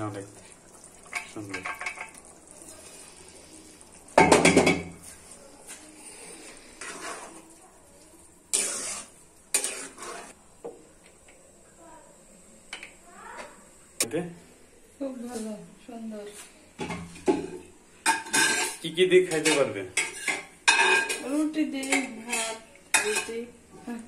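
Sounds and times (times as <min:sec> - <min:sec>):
curry sizzling faintly: 0:00.0 - 0:24.0
metal pot clanking on pan: 0:01.0 - 0:02.2, 0:04.2 - 0:05.0, 0:16.8 - 0:23.4
metal spatula scraping a pan: 0:06.0 - 0:07.5, 0:08.5 - 0:10.4, 0:16.9 - 0:23.5.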